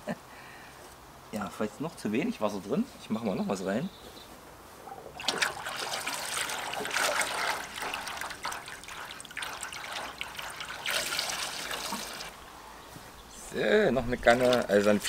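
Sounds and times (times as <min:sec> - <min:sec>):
water splashing into metal tray: 0:05.2 - 0:12.4, 0:14.1 - 0:15.0.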